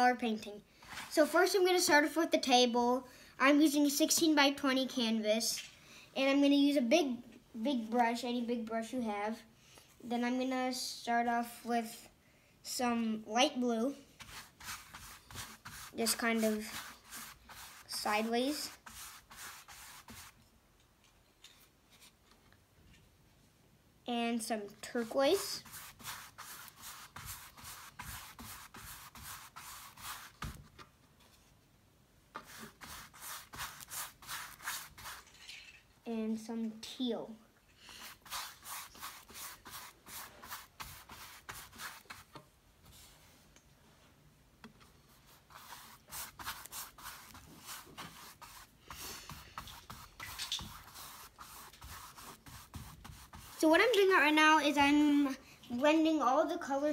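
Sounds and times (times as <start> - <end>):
paintbrush scrubbing canvas: 14.1 - 20.4, 24.8 - 30.7, 32.4 - 35.4, 37.9 - 43.3, 45.0 - 54.4.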